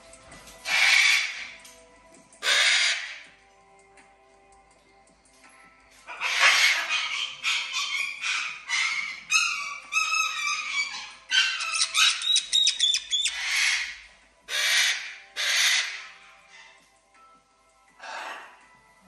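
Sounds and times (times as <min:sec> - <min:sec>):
chattering parrot calls: 0:00.6 - 0:01.6, 0:02.4 - 0:03.2, 0:06.1 - 0:16.6, 0:18.0 - 0:18.6
parrots screeching: 0:00.6 - 0:01.6, 0:02.4 - 0:03.3, 0:06.1 - 0:16.8, 0:18.0 - 0:18.6.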